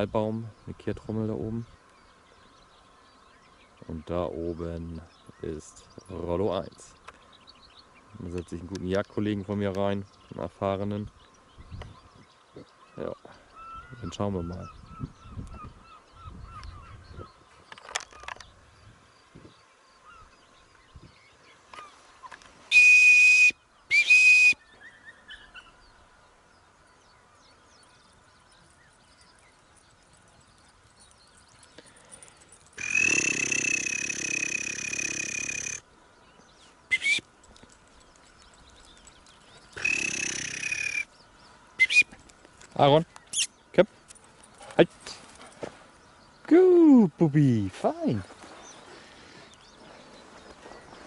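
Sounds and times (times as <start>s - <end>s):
person whistling high tones: 22.7s - 24.6s, 36.9s - 37.2s.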